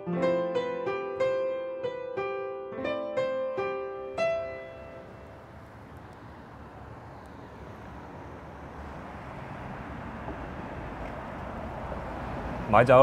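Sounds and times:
piano note ringing: 0:00.0 - 0:05.8
distant city traffic hum: 0:00.0 - 0:13.0.

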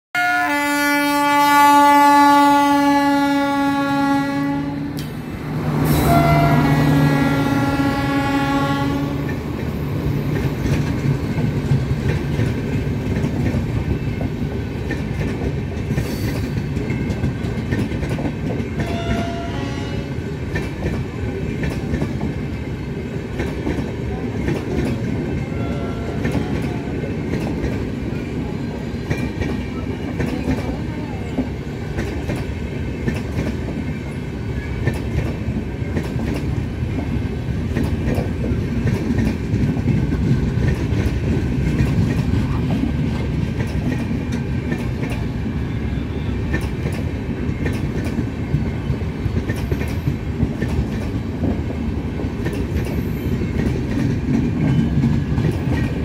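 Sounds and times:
electric locomotive horn: 0:00.2 - 0:09.5, 0:18.8 - 0:20.4, 0:25.5 - 0:27.0
train wheels rumbling on rails: 0:01.4 - 0:56.0.

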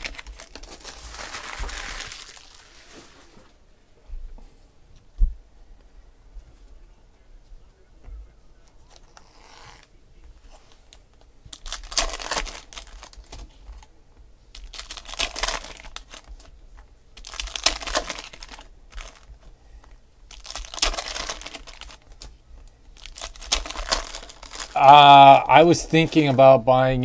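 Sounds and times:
foil wrappers tearing and crinkling: 0:00.0 - 0:03.3, 0:11.5 - 0:13.4, 0:14.5 - 0:16.5, 0:17.2 - 0:19.4, 0:20.3 - 0:22.3, 0:23.0 - 0:25.3.

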